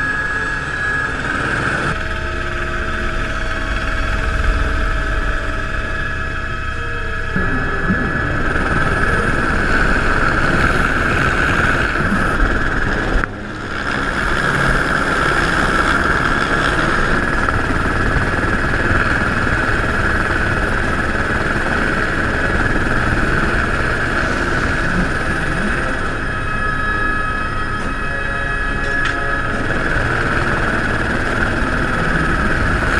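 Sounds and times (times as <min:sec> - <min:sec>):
helicopter engine and rotor: 0:00.0 - 0:32.9
high whine: 0:00.0 - 0:32.9.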